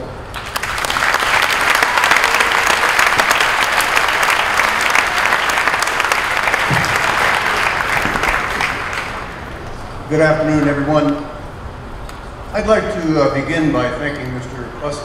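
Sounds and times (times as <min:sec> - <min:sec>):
crowd applauding: 0:00.3 - 0:09.7.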